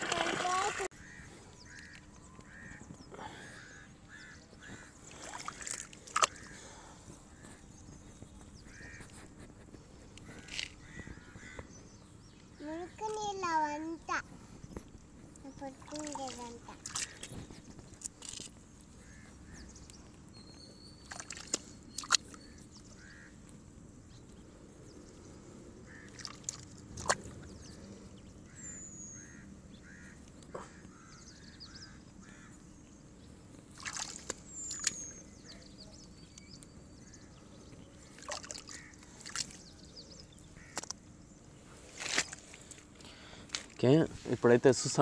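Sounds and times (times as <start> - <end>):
birds chirping: 0.0 - 45.0
hands squelching wet mud: 5.1 - 6.6, 15.8 - 17.3, 21.0 - 22.4, 26.0 - 27.5, 33.7 - 35.1, 38.2 - 39.7.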